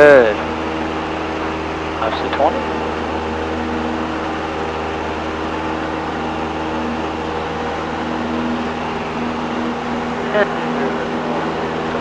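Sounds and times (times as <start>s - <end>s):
propeller aircraft engine drone: 0.0s - 12.0s.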